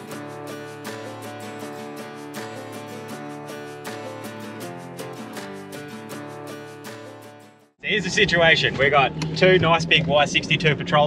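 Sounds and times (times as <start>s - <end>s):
strummed guitar music with beat: 0.0s - 7.8s.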